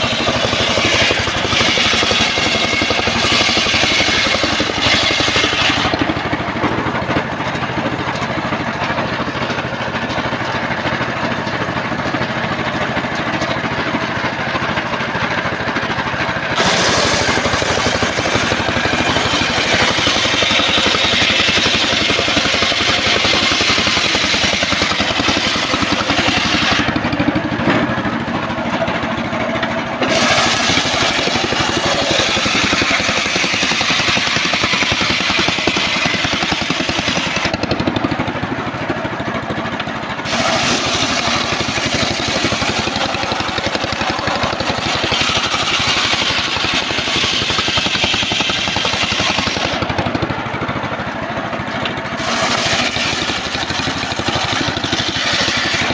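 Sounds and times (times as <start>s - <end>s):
saw blade spinning: 0.0s - 6.4s, 16.6s - 27.3s, 30.0s - 38.1s, 40.2s - 50.3s, 52.2s - 55.9s
saw blade cutting wood: 0.0s - 11.5s, 12.6s - 29.0s, 29.6s - 38.4s, 40.2s - 50.4s, 51.7s - 55.9s
sawmill engine running: 0.0s - 55.9s.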